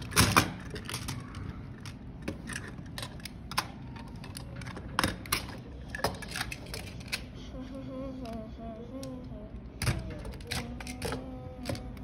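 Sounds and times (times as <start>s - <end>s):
plastic toy pieces clicking: 0.0s - 7.3s, 8.2s - 12.0s.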